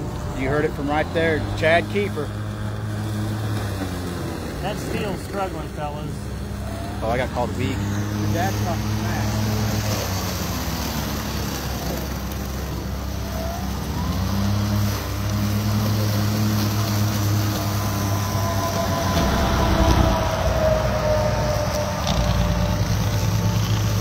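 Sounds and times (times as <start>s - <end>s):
highway traffic passing: 0.0s - 24.0s
lawn mowers cutting grass: 0.0s - 24.0s.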